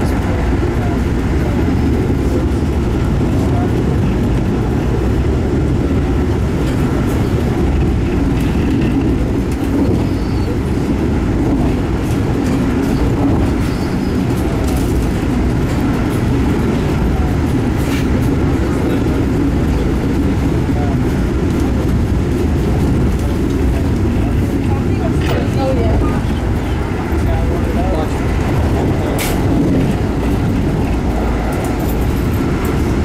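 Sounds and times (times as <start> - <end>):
train rumbling from inside: 0.0 - 33.0.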